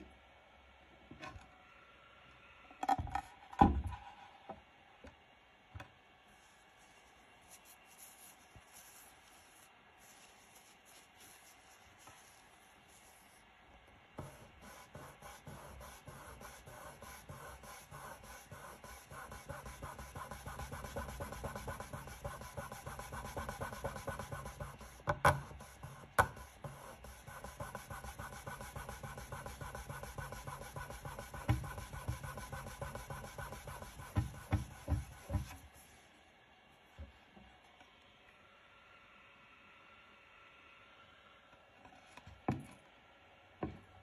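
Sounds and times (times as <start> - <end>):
cloth rubbing on wood: 6.3 - 13.4, 14.2 - 36.0.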